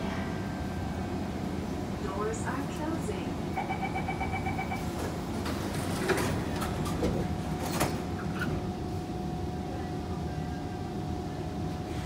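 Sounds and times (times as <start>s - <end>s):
train rumble: 0.0s - 12.0s
train doors sliding shut: 4.9s - 8.7s.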